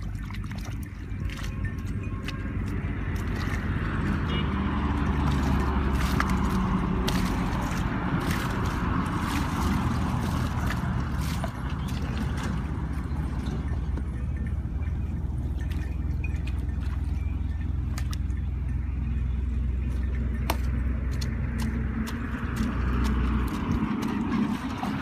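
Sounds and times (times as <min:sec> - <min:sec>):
wet mud splashes: 0:00.0 - 0:14.1, 0:15.3 - 0:18.6, 0:19.8 - 0:25.0
hoe digging: 0:00.0 - 0:14.2, 0:19.8 - 0:25.0.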